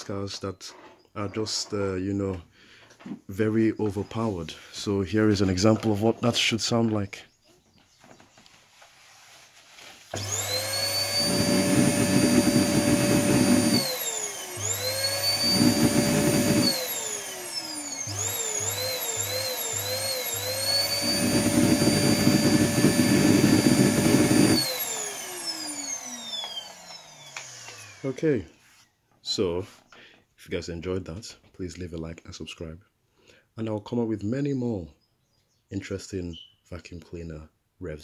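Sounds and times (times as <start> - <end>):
vacuum cleaner motor whining: 10.1 - 28.5.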